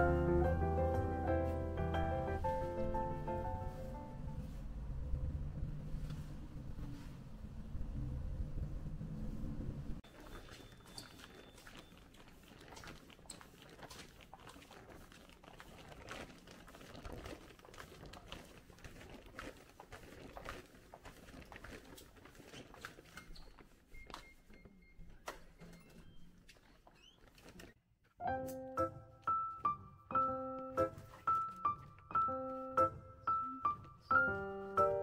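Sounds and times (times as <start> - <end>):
bus rumbling: 2.4 - 10.0
shopping bags rustling and clicking: 10.0 - 27.8.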